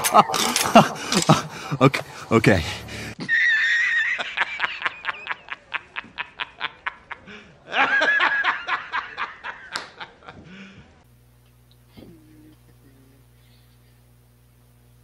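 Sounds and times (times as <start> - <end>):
man laughing hard: 0.0 - 10.8.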